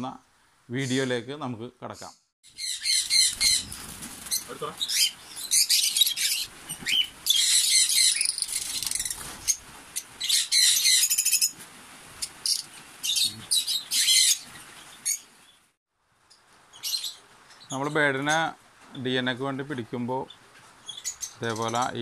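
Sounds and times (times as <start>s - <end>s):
lovebirds calling: 1.9s - 11.6s, 12.2s - 15.6s, 16.7s - 19.1s, 19.9s - 22.0s
wings flapping: 2.9s - 10.3s.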